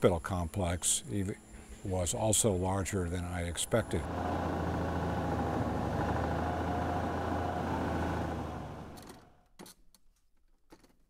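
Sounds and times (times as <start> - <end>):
propeller aircraft engine droning: 3.7 - 9.3.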